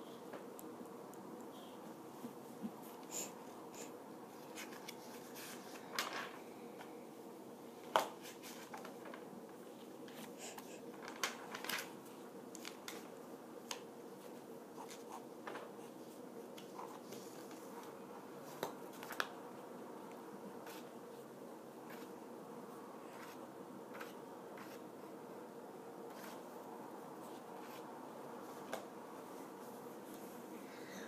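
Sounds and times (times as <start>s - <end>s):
low room hum: 0.0s - 31.0s
drawing on paper: 21.8s - 22.1s, 23.1s - 24.9s.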